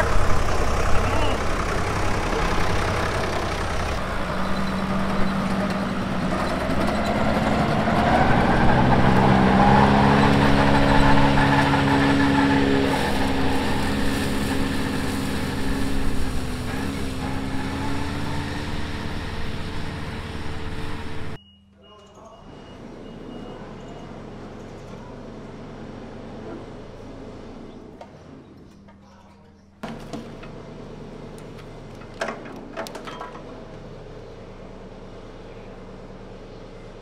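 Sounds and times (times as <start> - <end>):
mower cutting hay: 0.0 - 21.4, 29.8 - 32.7
tractor engine running: 0.0 - 21.4, 22.8 - 37.0.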